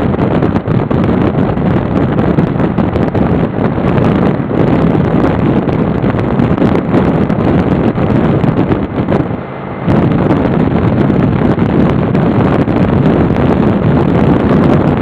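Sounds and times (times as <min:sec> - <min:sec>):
wind buffeting microphone: 0:00.0 - 0:15.0.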